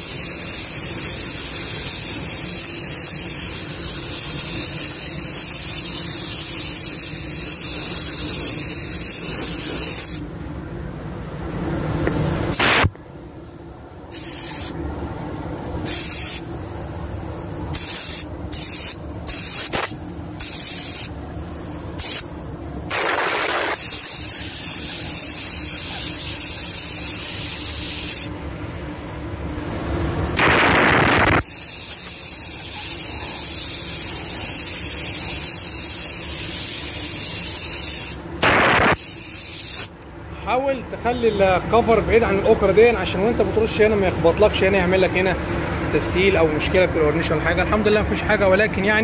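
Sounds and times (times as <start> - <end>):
paint spray gun hissing: 0.0 - 10.2, 14.1 - 14.8, 15.8 - 16.6, 17.6 - 21.2, 21.9 - 28.3, 30.4 - 40.0.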